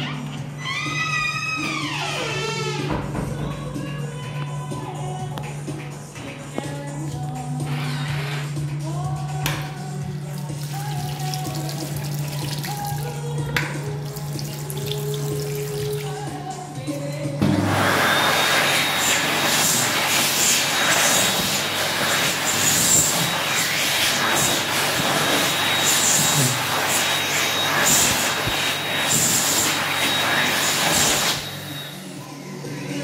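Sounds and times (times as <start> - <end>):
hand dryer blowing: 10.2 - 32.2.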